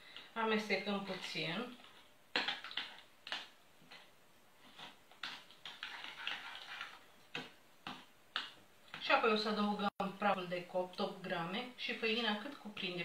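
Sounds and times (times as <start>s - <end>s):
soft scraping in bowl: 4.6s - 7.1s.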